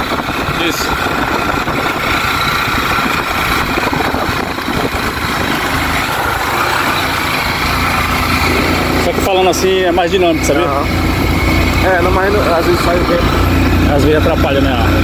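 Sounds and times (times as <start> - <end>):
wind rushing over microphone: 0.0 - 9.8
motorcycle engine running: 0.0 - 15.0.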